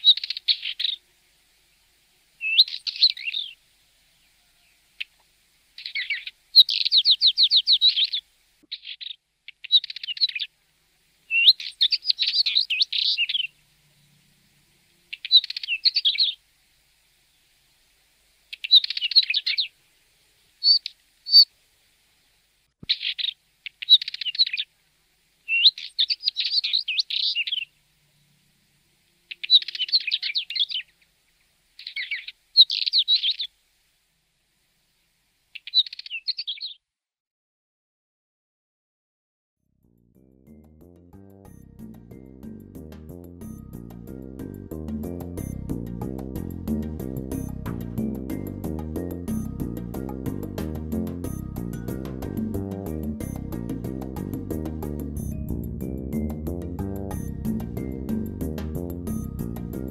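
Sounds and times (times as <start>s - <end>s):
bird singing scratchy phrases: 0.0s - 1.1s, 2.4s - 3.6s, 5.8s - 10.5s, 11.3s - 16.4s, 18.5s - 19.8s, 20.6s - 21.5s, 22.8s - 24.7s, 25.4s - 28.4s, 29.2s - 33.6s, 35.5s - 36.8s.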